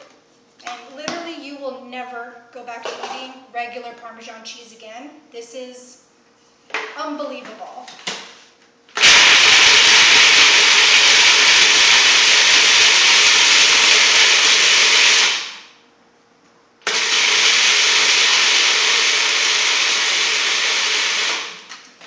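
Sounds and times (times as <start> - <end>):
food processor grinding nuts: 9.0 - 15.7, 16.8 - 21.7.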